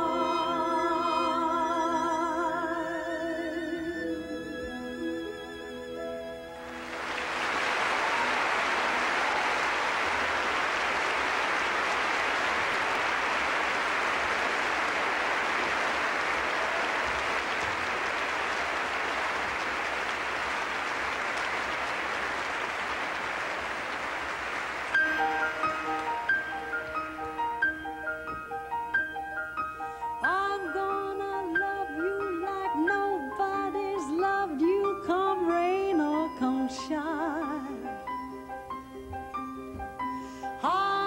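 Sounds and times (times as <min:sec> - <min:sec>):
large audience applauding: 0:06.6 - 0:28.6.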